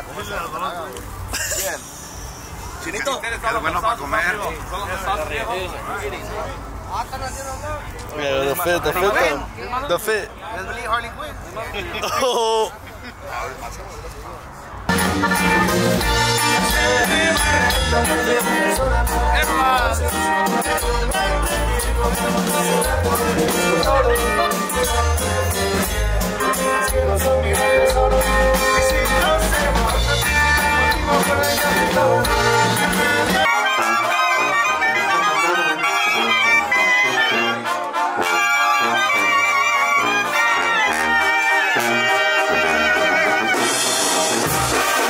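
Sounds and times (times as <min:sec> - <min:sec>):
live band music with heavy bass: 0:14.9 - 0:45.0
wavering higher melody music: 0:14.9 - 0:45.0.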